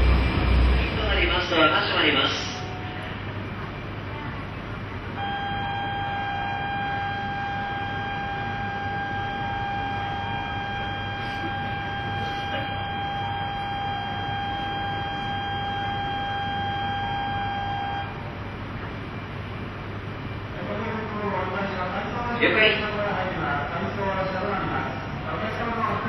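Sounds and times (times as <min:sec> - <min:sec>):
low background hum: 0:00.0 - 0:26.0
electronic buzzer tone: 0:05.2 - 0:18.2.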